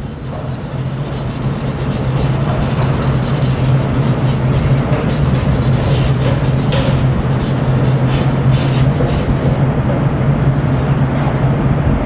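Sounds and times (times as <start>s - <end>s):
chalk scraping on blackboard: 0.0s - 9.6s
steady low hum: 0.0s - 12.0s.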